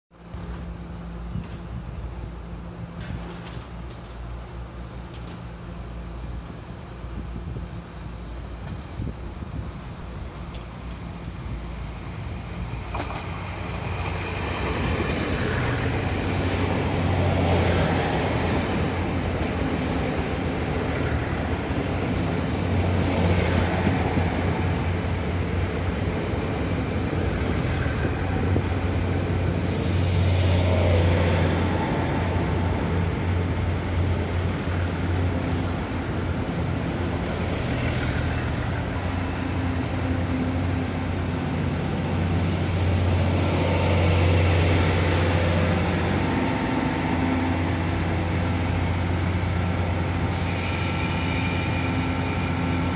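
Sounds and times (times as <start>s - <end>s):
diesel train engines humming: 0.2s - 52.9s
air hisses: 29.5s - 30.9s, 50.3s - 52.9s.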